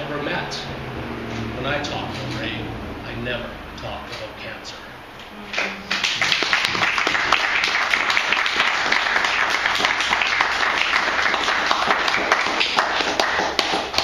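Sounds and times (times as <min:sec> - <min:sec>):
audience applauding: 0:05.5 - 0:14.0.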